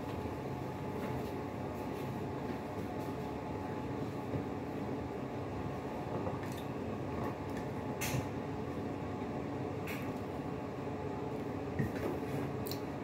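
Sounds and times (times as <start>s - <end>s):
appliance humming: 0.0s - 13.0s.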